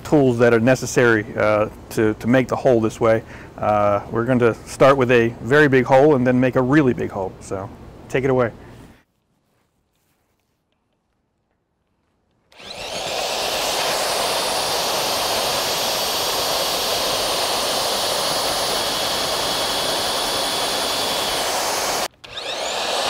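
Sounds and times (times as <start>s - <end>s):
pneumatic drill boring: 12.5s - 23.0s.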